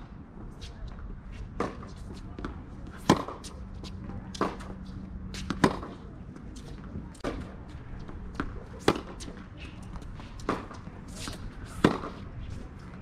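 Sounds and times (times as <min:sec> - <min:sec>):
rackets striking tennis ball: 0:03.0 - 0:03.6, 0:05.4 - 0:06.0, 0:08.3 - 0:12.3.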